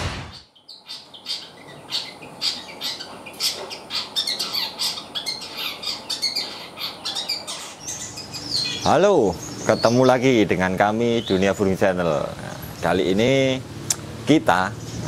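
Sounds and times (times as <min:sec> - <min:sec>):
bird chirping and squawking: 0:00.3 - 0:10.4.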